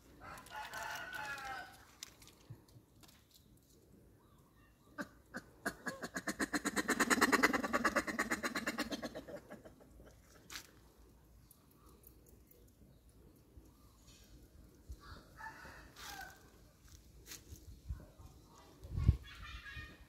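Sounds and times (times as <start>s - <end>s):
macaque staccato calls: 5.0s - 9.8s.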